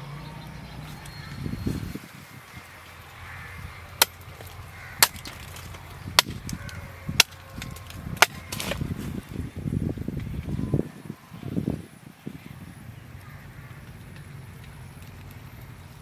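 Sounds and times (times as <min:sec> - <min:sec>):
knife chopping into wood: 0:04.0 - 0:08.9.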